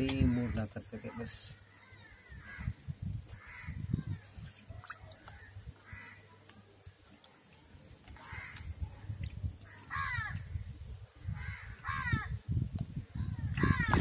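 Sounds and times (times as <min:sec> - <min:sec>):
crows cawing: 0:01.7 - 0:03.9, 0:05.3 - 0:06.3, 0:08.2 - 0:08.7, 0:09.6 - 0:10.5, 0:11.3 - 0:12.4, 0:13.6 - 0:14.0
water sloshing in a plastic tub: 0:04.0 - 0:10.4.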